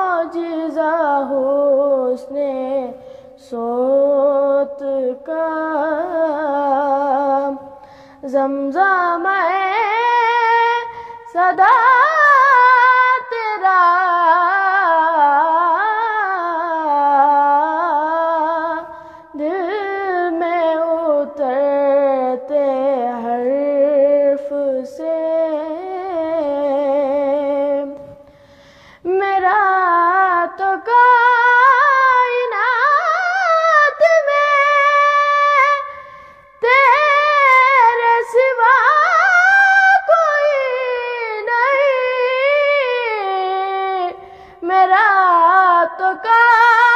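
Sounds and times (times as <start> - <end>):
boy singing solo: 36.6 - 46.9.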